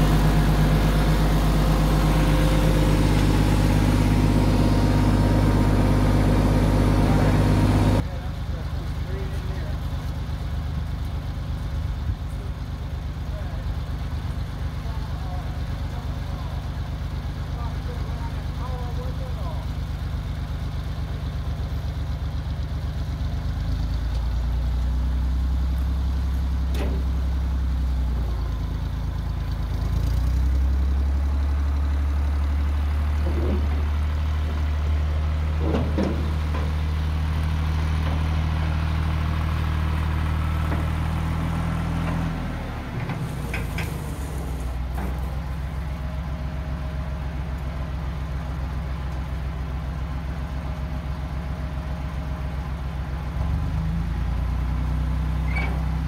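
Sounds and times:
tractor engine running under load: 0:00.0 - 0:56.0.

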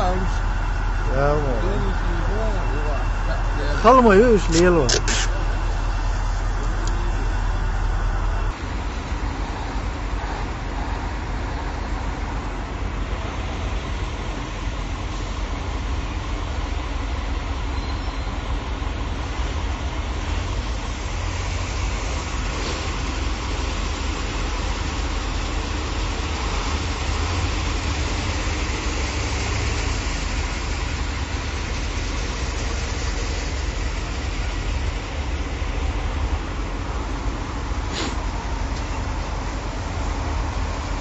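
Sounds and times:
road noise: 0:00.0 - 0:41.0
vehicle engine rumble: 0:00.0 - 0:41.0
even hiss: 0:37.8 - 0:38.3.

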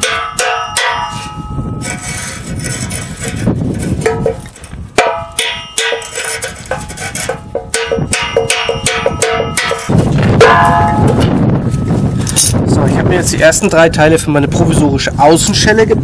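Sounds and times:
hammer striking sheet metal: 0:00.0 - 0:12.5
wind rumbling on microphone: 0:00.0 - 0:16.0.

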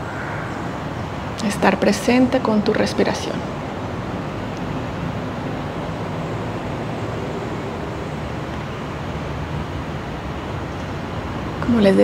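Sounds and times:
steady rushing rumble: 0:00.0 - 0:12.0.

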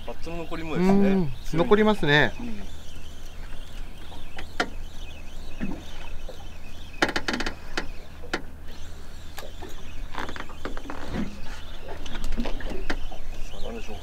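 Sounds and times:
boat engine hum: 0:00.0 - 0:14.0.

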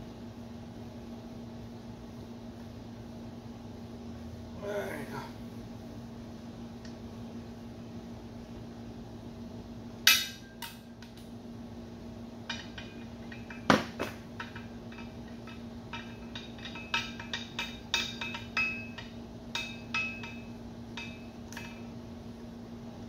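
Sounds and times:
steady low hum: 0:00.0 - 0:23.0
loud metal knock: 0:12.5 - 0:21.8.

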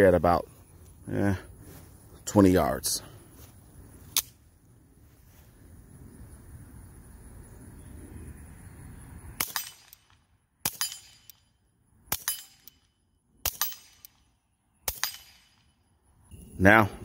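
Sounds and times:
suppressed pistol shots: 0:09.4 - 0:11.5, 0:12.1 - 0:12.8, 0:13.4 - 0:15.7.

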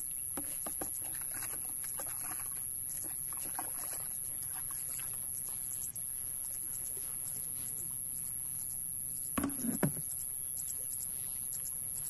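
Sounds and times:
plastic buckets and lids clicking: 0:09.4 - 0:10.0.

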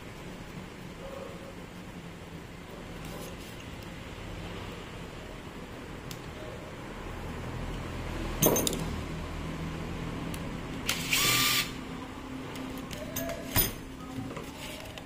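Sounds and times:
knocks of tools being handled: 0:08.4 - 0:09.0, 0:12.6 - 0:15.0.

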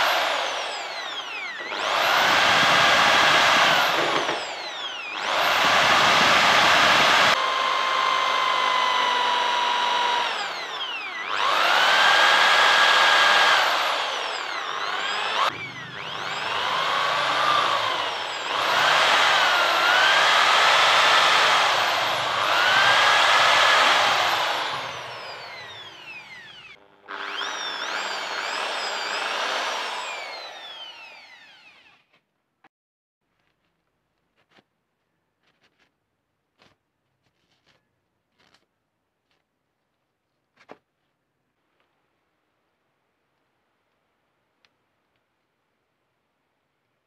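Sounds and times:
electric drill boring into metal: 0:00.0 - 0:32.1.

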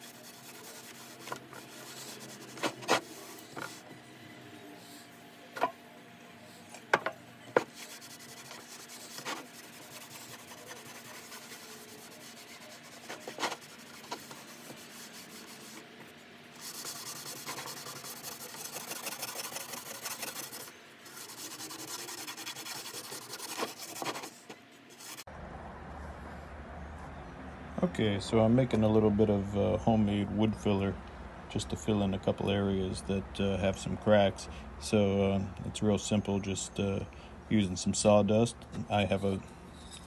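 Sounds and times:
cloth rag rubbing wood: 0:00.0 - 0:03.8, 0:07.6 - 0:25.3
scouring pad scrubbing wood: 0:00.0 - 0:03.8, 0:07.6 - 0:15.8, 0:16.6 - 0:24.4.

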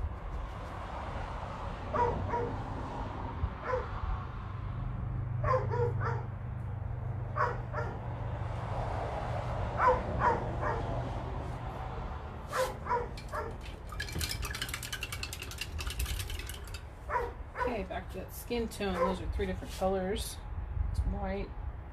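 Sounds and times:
rapid clicks: 0:13.2 - 0:16.8.

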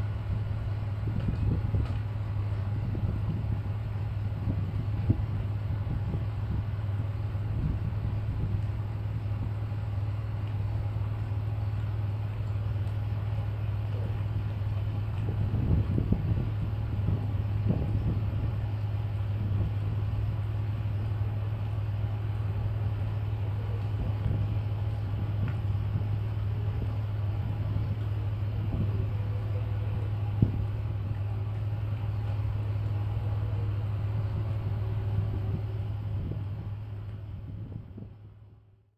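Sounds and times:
ship engine humming: 0:00.0 - 0:38.8.

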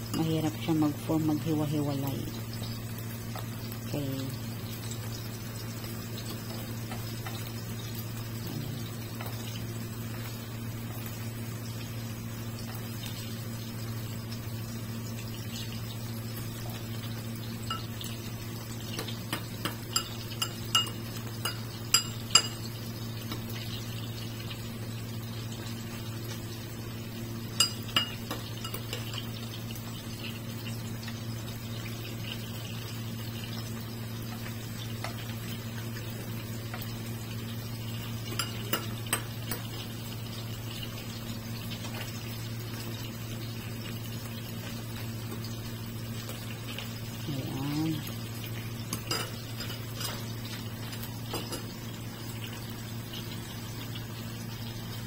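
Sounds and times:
patties sizzling in oil: 0:00.0 - 0:55.0
metal spoon clinking on pan: 0:17.7 - 0:18.0, 0:19.3 - 0:22.6, 0:27.6 - 0:29.2, 0:38.3 - 0:39.6.

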